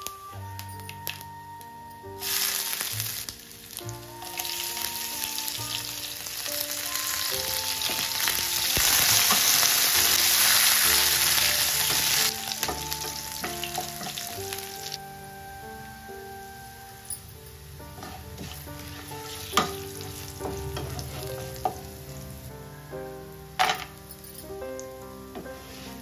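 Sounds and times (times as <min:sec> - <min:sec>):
spices sizzling in hot fat: 0:02.2 - 0:15.0, 0:17.8 - 0:22.1.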